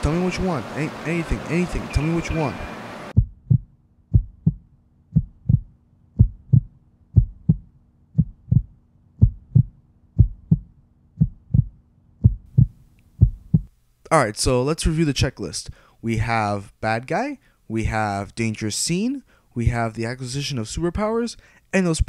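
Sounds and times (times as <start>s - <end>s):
heartbeat thuds: 3.2s - 13.7s.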